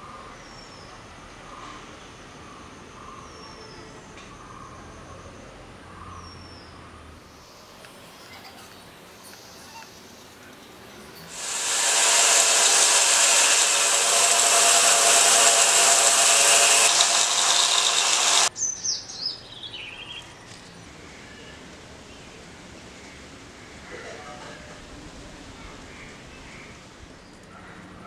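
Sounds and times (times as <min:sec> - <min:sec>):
belt sander grinding steel: 0:11.3 - 0:18.5
sander whine winding down: 0:11.3 - 0:18.5.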